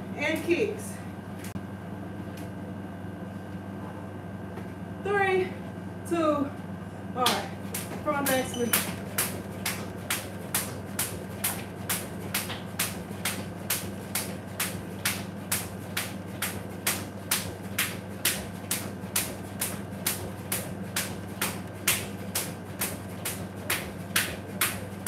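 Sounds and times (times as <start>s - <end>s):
jump rope slapping tile floor: 7.3s - 25.0s.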